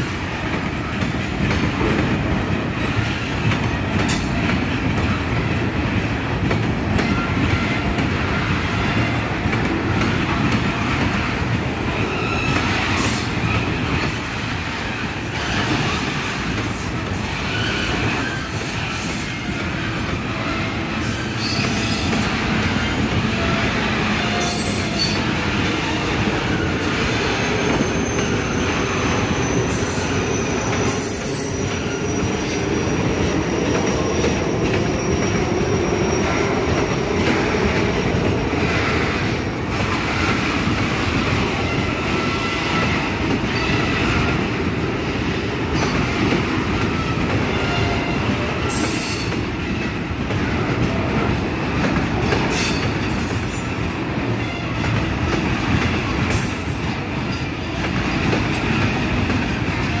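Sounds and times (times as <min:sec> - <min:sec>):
train wheels rumbling on rail: 0:00.0 - 1:00.0
clacks over rail joints: 0:00.4 - 0:11.8, 0:54.4 - 1:00.0.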